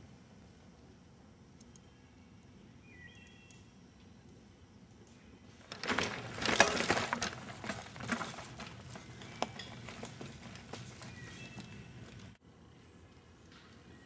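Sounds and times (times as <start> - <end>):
mountain bike rattling on trail: 5.6 - 12.4.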